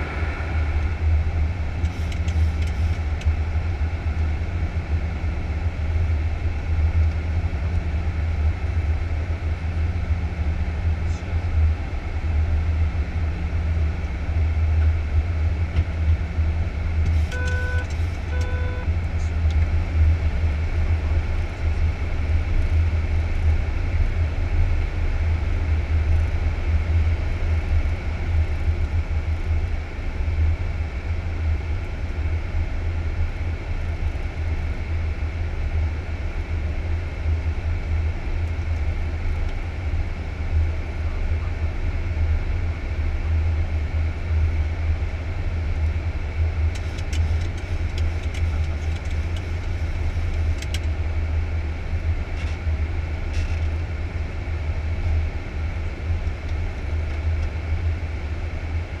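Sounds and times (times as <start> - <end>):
low rumble of airflow and engines: 0.0 - 59.0
short electronic beeps: 17.2 - 18.9.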